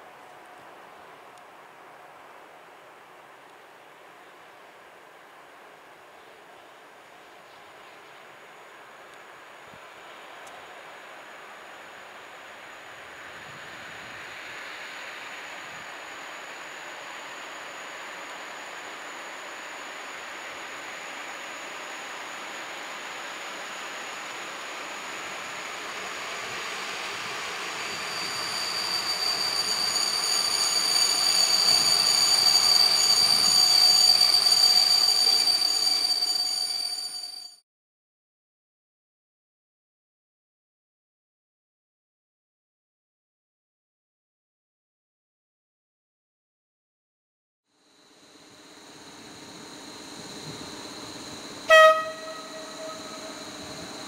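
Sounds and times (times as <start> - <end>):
electric train rumble: 7.2 - 37.6, 47.9 - 54.0
high-pitched brake squeal: 26.7 - 37.6, 48.5 - 54.0.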